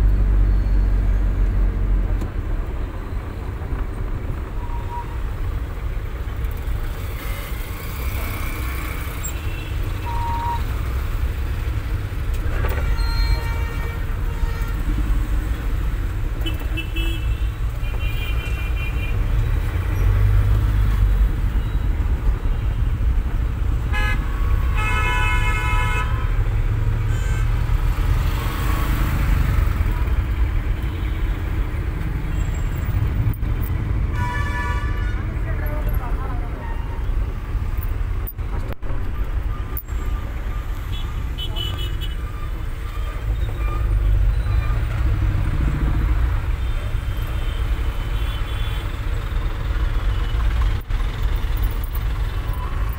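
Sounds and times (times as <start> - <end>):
engine and road rumble: 0.0 - 52.9
car horns honking: 23.9 - 26.4, 34.1 - 35.4, 39.6 - 44.9.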